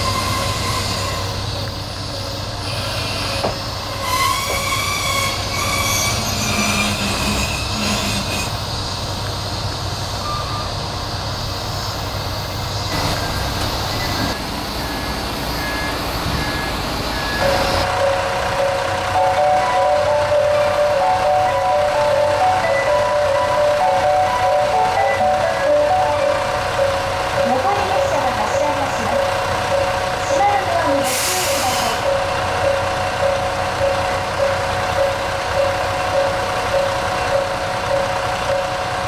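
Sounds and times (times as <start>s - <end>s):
wheels and brakes squealing: 0.0s - 9.2s, 10.2s - 10.8s, 11.5s - 18.0s
diesel engine running: 8.5s - 39.0s.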